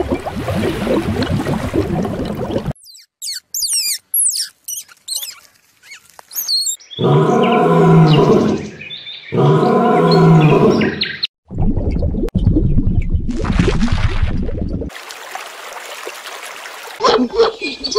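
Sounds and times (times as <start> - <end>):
high chirping whistles: 2.8 - 6.9.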